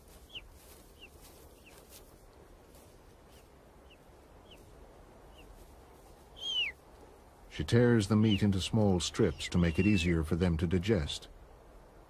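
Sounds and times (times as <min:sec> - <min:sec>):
eagle chicks cheeping: 0:00.1 - 0:01.9, 0:03.8 - 0:04.6, 0:05.3 - 0:05.6, 0:06.3 - 0:06.8, 0:07.9 - 0:10.3.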